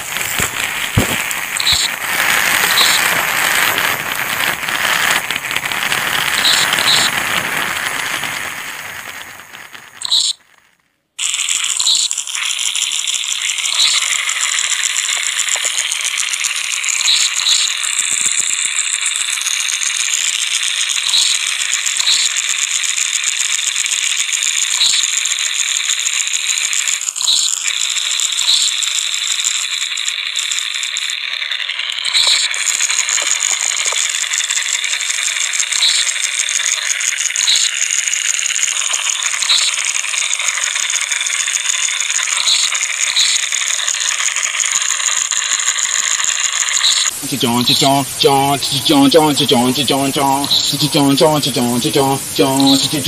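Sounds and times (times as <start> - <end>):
harsh high-pitched rattling hiss: 0.0 - 53.0
short high chirps: 10.0 - 10.4.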